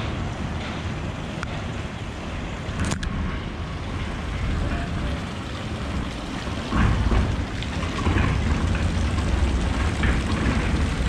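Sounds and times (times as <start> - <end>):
fountain water splashing: 4.2 - 11.0.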